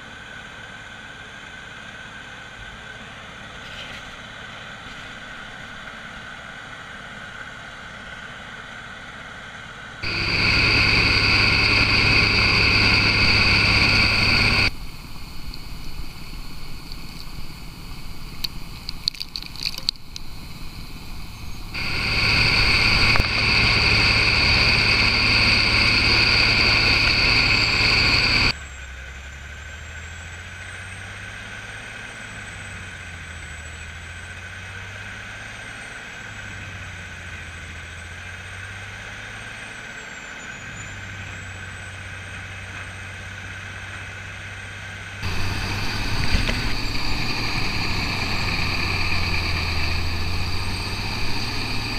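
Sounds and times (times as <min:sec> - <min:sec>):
grinder engine drone with whine: 0:00.0 - 0:51.9.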